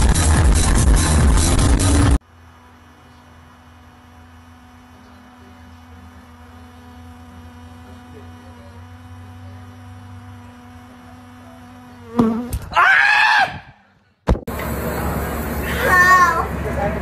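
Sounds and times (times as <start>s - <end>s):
bee buzzing: 3.4s - 12.7s
shrill wavering cry: 12.7s - 13.8s.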